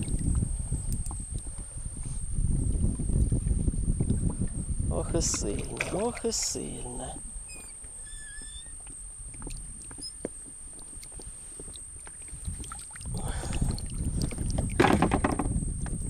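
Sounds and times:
water splashing: 5.1s - 7.3s, 9.2s - 15.6s
light knocks on boat: 14.7s - 15.6s.

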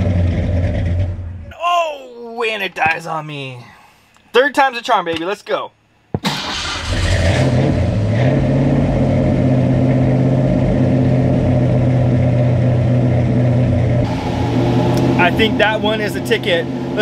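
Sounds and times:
car engine starting and running: 0.0s - 1.4s, 6.2s - 17.0s.

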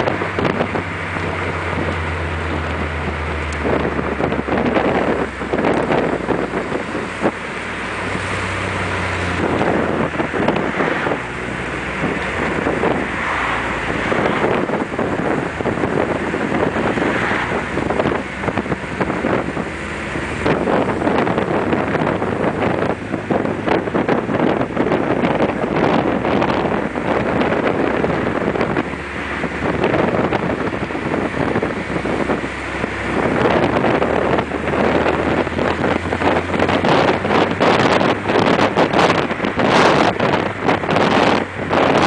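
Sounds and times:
car engine running: 0.0s - 42.0s
wind buffeting microphone: 0.0s - 42.0s.

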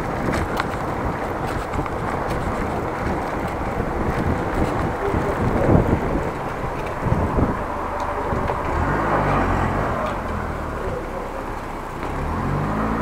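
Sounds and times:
car engine running: 0.0s - 13.0s
street noise: 0.0s - 13.0s
wind rumbling on microphone: 0.0s - 13.0s.

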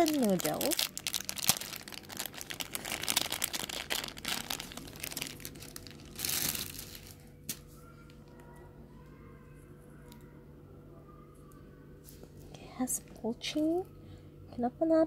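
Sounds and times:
plastic bag crinkling: 0.0s - 7.6s.

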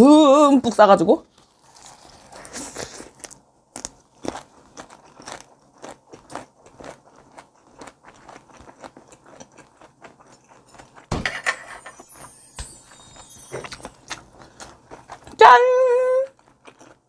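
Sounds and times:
crunchy wet chewing: 1.3s - 11.1s, 13.5s - 15.4s, 16.3s - 17.0s
falling sparkly sweep effect: 11.8s - 13.9s.

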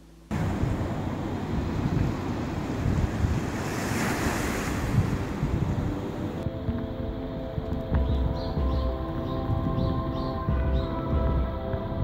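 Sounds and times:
small waves breaking on beach: 0.3s - 6.4s
wind buffeting microphone: 0.3s - 12.0s.

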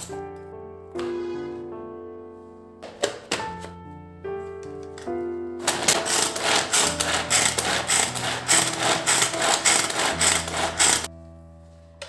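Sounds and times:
food chopper blades rattling: 5.6s - 11.1s.

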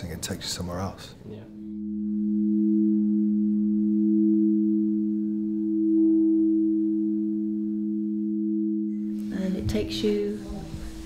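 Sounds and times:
singing bowls ringing: 1.6s - 10.4s.

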